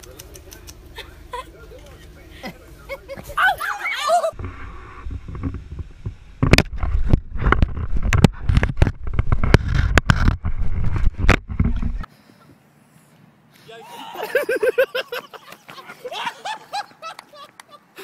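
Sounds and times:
low rumbling handling noise: 4.4 - 12.1.

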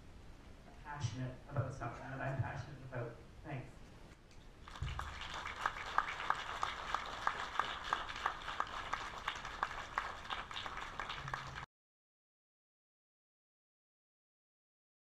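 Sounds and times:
audience applauding: 4.6 - 11.7
loud individual claps: 4.6 - 11.7.

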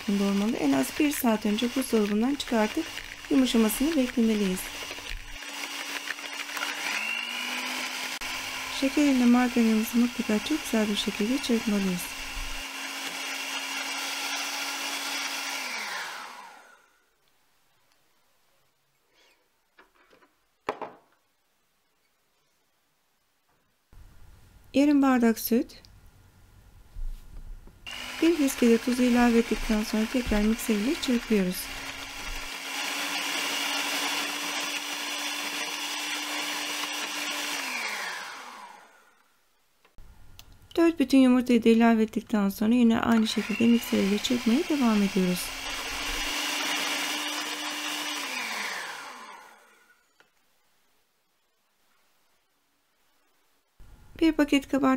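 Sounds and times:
mixer motor winding down: 0.0 - 16.9, 27.9 - 39.1, 43.1 - 50.0
electric hand mixer running: 0.0 - 17.0, 27.9 - 39.1, 43.1 - 50.0.

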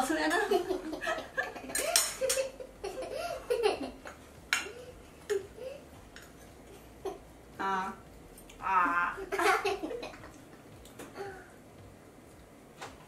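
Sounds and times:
girl giggling: 0.5 - 4.1, 9.2 - 10.3
forks clicking on plates: 1.7 - 2.5.

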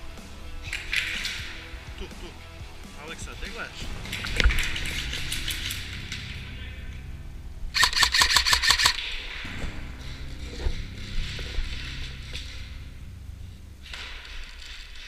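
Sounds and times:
airsoft rifle shots: 7.8 - 9.5.

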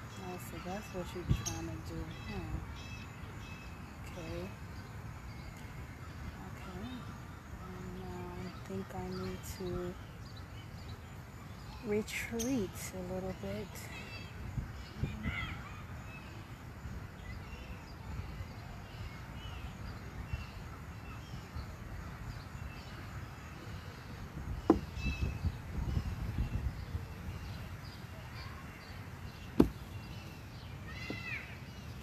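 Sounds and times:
wind rumbling on microphone: 0.0 - 2.8, 13.4 - 15.8, 16.7 - 28.6
birds chirping: 0.0 - 32.0.

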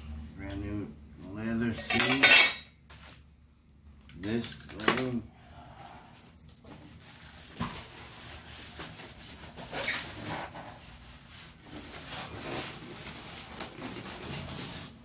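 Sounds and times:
plastic wrap rustling: 6.7 - 15.0
foam packing creaking and scraping: 6.9 - 15.0.

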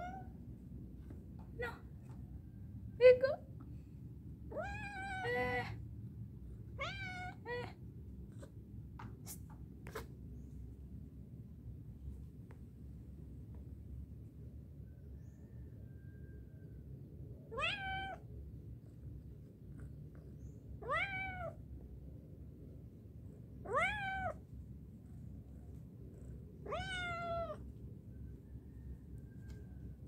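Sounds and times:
cat meowing: 0.0 - 0.3, 4.5 - 5.8, 6.8 - 7.8, 17.5 - 18.2, 20.8 - 21.6, 23.6 - 24.4, 26.6 - 27.6.

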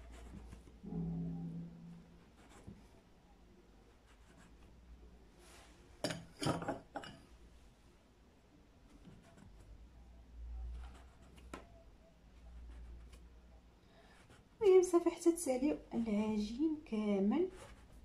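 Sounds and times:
brief low hum: 0.8 - 2.6.

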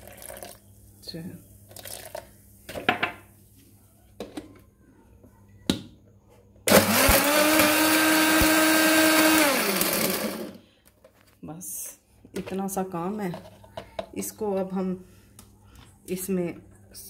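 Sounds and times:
electric blender running: 6.7 - 10.6.

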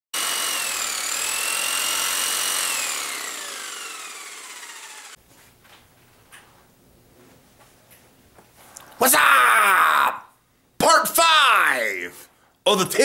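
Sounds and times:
power saw whining: 0.1 - 5.2.

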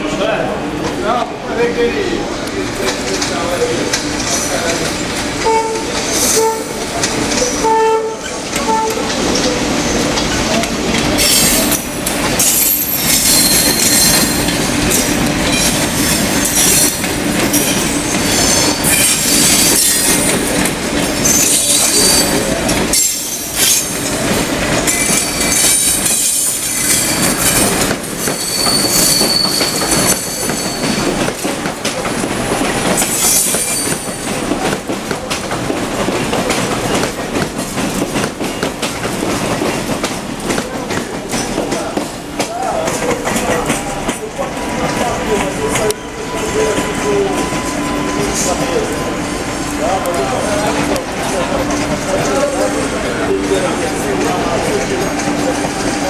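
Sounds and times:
train wheels rumbling on rails: 0.0 - 56.0
short train horn beeps: 5.5 - 6.8, 7.6 - 9.1
high-pitched wheel squeal: 12.4 - 14.4, 28.2 - 31.0.

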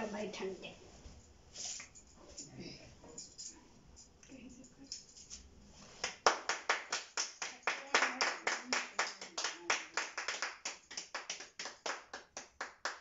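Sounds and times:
people clapping in rhythm: 6.0 - 13.0.

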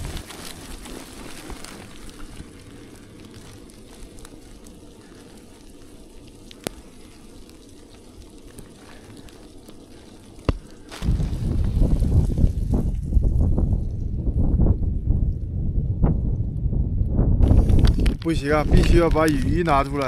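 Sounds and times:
sleet crackling hiss: 0.0 - 13.0, 17.4 - 20.0.

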